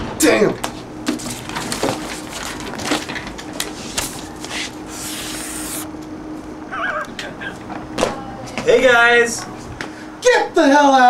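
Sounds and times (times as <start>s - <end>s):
papers handled on a desk: 1.1s - 5.9s
marker scratching across paper: 4.5s - 5.9s.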